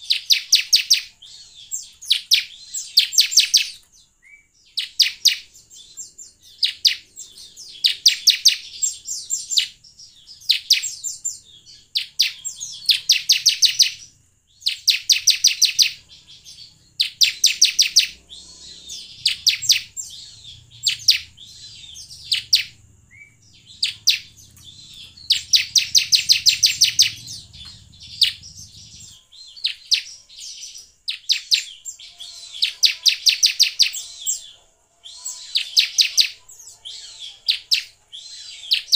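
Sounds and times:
bird chipping rapidly: 0:04.7 - 0:34.5.

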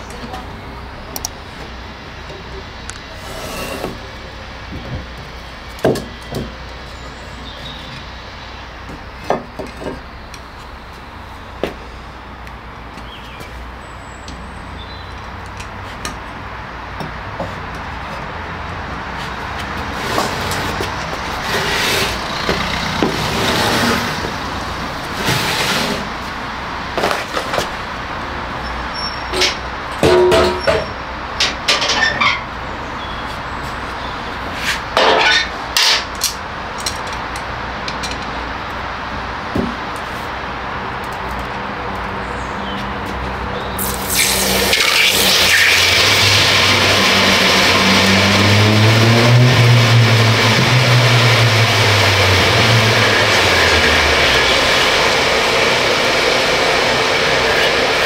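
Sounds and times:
furnace rushing noise: 0:19.1 - 0:26.4
metal knocks and clanks: 0:29.4 - 0:32.4.

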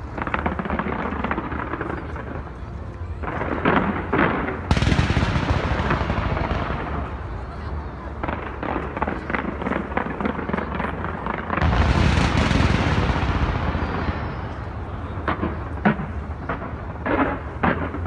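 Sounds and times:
fireworks crackling and popping: 0:00.0 - 0:18.0
sharp firework bangs: 0:03.7 - 0:07.1, 0:11.5 - 0:18.0.

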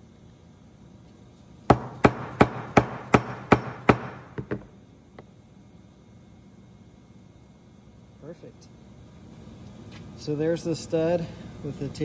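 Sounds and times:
metal knocking on steel workbench: 0:01.7 - 0:04.7.

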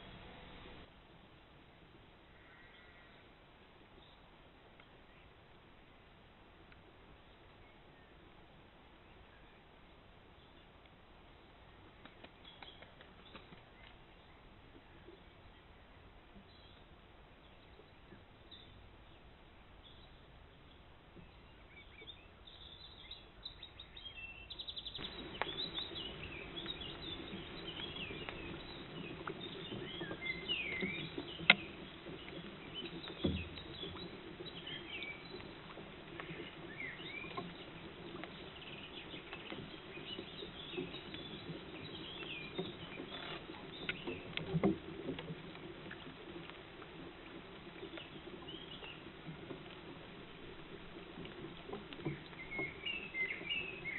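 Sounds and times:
steady low hum: 0:00.0 - 0:00.9
songbirds chirping and singing: 0:20.7 - 0:44.7, 0:51.2 - 0:53.9.

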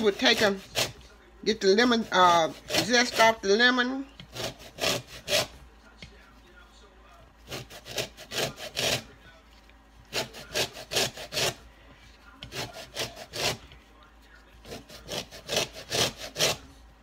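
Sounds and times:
grater rasping on lemon peel: 0:00.0 - 0:03.6, 0:04.2 - 0:05.6, 0:07.4 - 0:09.2, 0:10.0 - 0:11.6, 0:12.4 - 0:13.8, 0:14.6 - 0:16.8.

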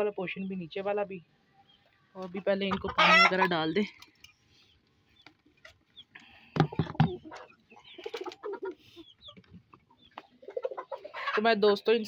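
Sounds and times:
cage birds chirping: 0:00.0 - 0:12.0
hens clucking: 0:01.8 - 0:11.8.

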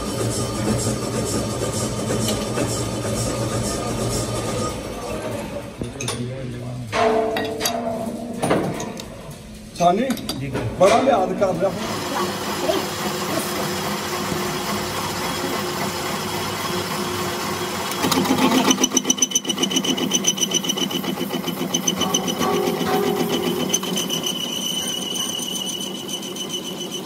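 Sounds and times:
metal lathe running: 0:11.6 - 0:27.0
lathe tool cutting with high whine: 0:11.7 - 0:27.0.

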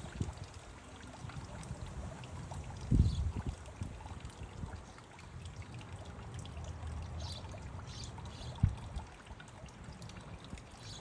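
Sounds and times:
fountain water trickling: 0:00.0 - 0:11.0.

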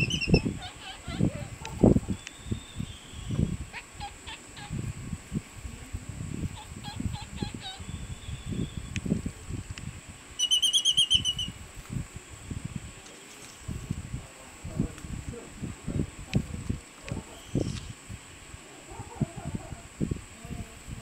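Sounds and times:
rapid trilled bird call: 0:00.0 - 0:01.3, 0:10.4 - 0:11.6.

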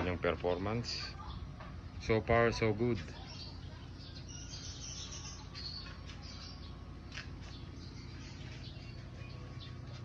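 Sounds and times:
steady low hum: 0:00.0 - 0:10.0
faint bird chirps: 0:02.9 - 0:10.0.

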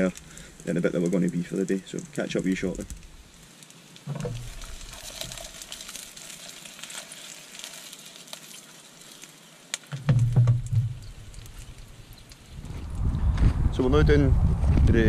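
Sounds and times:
sausages sizzling in frying pan: 0:00.0 - 0:12.7
pan clattering on burner: 0:09.9 - 0:11.2.

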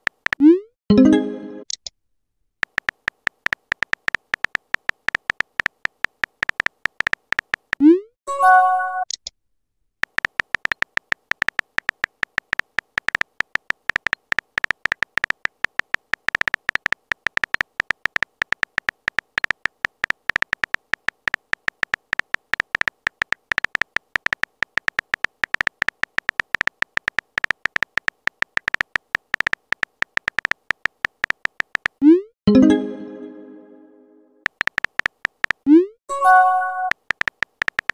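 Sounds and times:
virtual keyboard tap clicks: 0:02.6 - 0:07.8, 0:10.0 - 0:32.0, 0:34.4 - 0:35.6, 0:36.9 - 0:37.9
short app chime: 0:32.5 - 0:34.2, 0:36.1 - 0:36.9.

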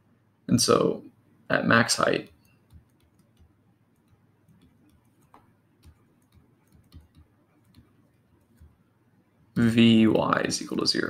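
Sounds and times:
stylus tapping tablet screen: 0:02.2 - 0:08.9.

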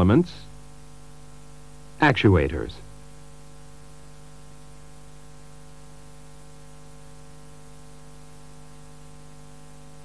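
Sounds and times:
background hiss: 0:00.0 - 0:05.6
steady electrical hum: 0:00.0 - 0:10.0.

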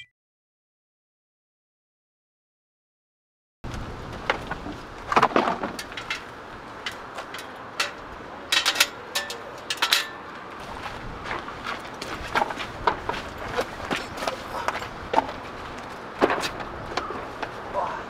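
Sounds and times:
camp gear knocking and rattling: 0:04.3 - 0:17.6.

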